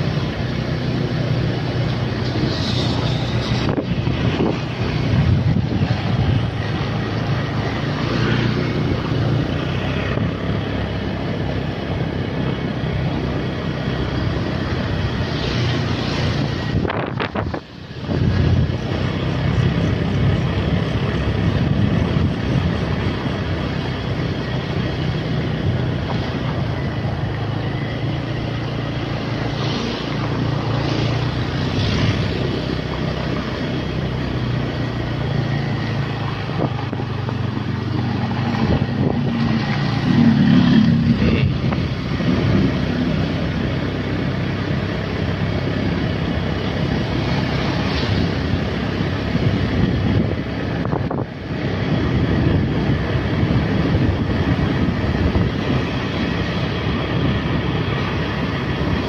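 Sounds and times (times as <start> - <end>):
motorcycle engine running: 0.0 - 59.0
wind on microphone: 2.0 - 10.7, 15.5 - 23.8, 34.5 - 43.6, 45.4 - 59.0.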